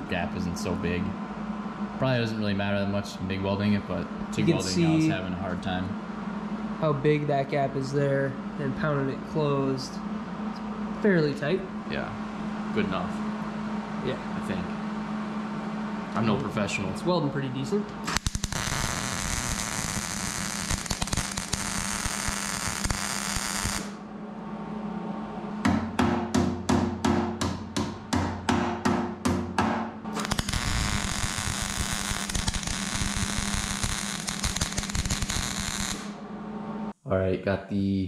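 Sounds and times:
welding arc crackling: 18.0s - 24.0s, 30.1s - 36.2s.

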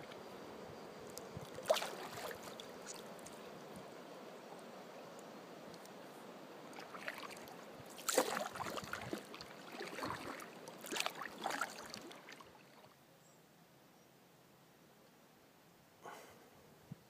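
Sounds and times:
paddle splashing in water: 1.4s - 3.4s, 6.7s - 13.0s.

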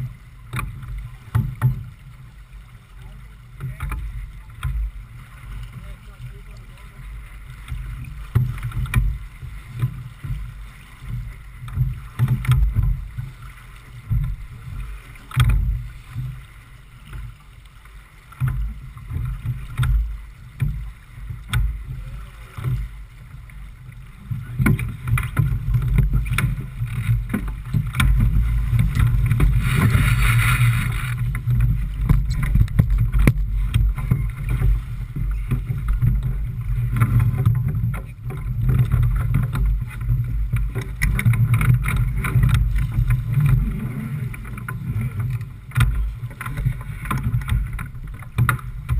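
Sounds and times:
water rushing past boat hull: 0.0s - 48.9s
wind buffeting microphone: 24.4s - 48.9s.

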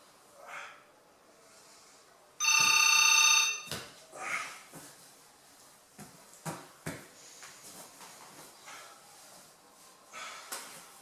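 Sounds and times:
phone ringtone trilling: 2.4s - 3.7s.

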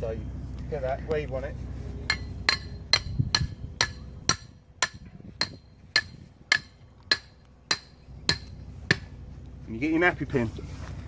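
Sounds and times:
hammer striking metal pin: 2.1s - 9.1s.

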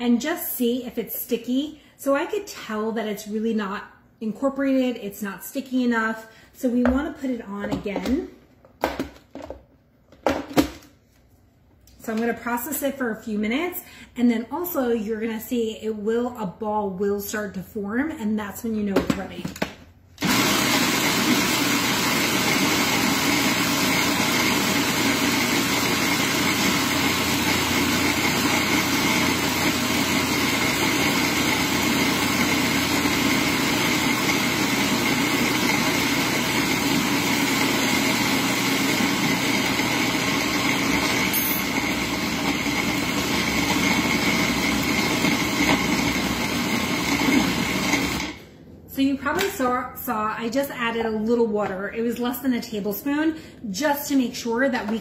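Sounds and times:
food processor motor whirring: 20.2s - 48.5s.

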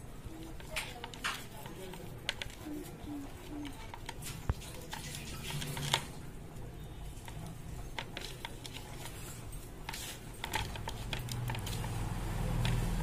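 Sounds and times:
fingers tapping plastic plate: 0.3s - 6.1s
wet squishing of hands: 0.3s - 13.0s.

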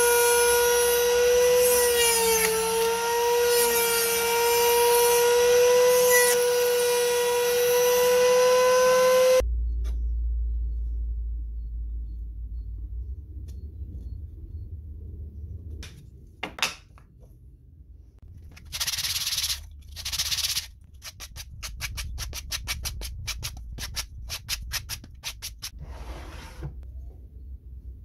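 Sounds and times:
sandpaper rubbing on wood: 18.5s - 25.7s.

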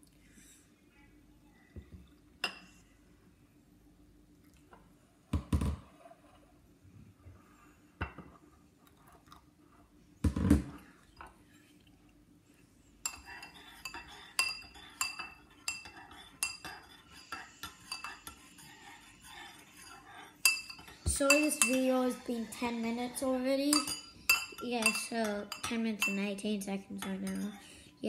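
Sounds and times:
spoon clinking in ceramic bowl: 20.5s - 21.8s, 23.7s - 26.2s, 27.0s - 27.6s.

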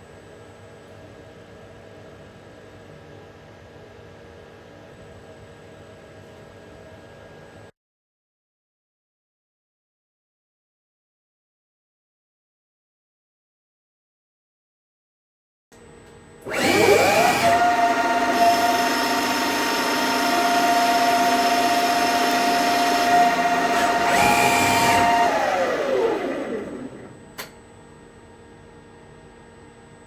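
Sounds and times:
lathe motor whine: 16.4s - 27.3s.

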